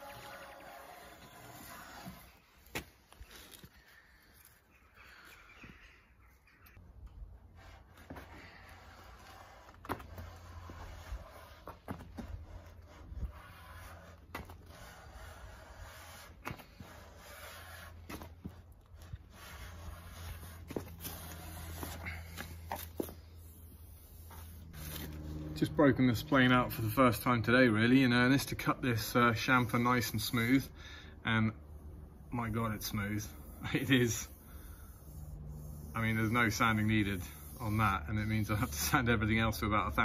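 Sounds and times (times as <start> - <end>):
hand plane shaving wood: 7.5 - 23.0.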